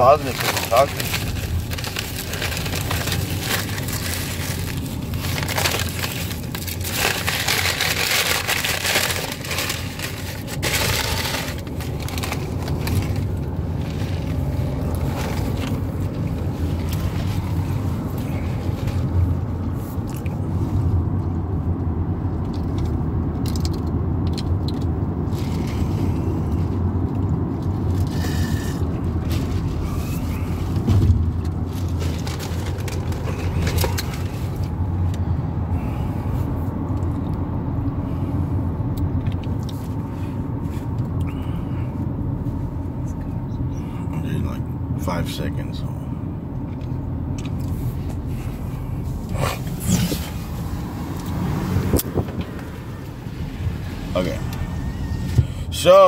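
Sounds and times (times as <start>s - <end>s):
paper bag crinkling: 0.0s - 19.2s, 28.0s - 34.8s
car cabin rumble: 0.0s - 56.0s.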